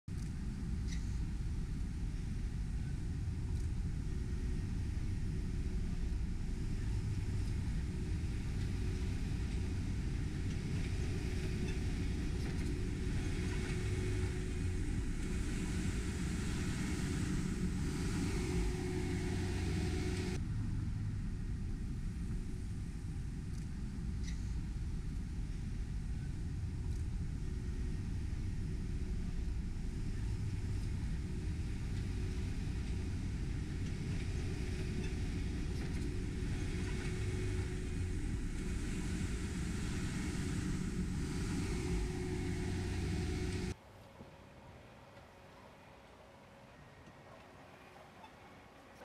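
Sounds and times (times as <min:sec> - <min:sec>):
road traffic rumble: 0:00.1 - 0:43.9
heavy machine passing: 0:02.0 - 0:23.5, 0:25.4 - 0:43.8.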